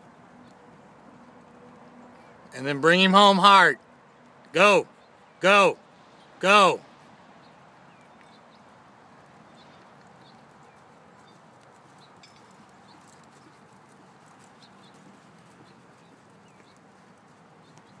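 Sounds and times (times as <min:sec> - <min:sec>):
steady outdoor hush: 0:00.0 - 0:18.0
horse hoofbeats on dirt: 0:08.0 - 0:18.0.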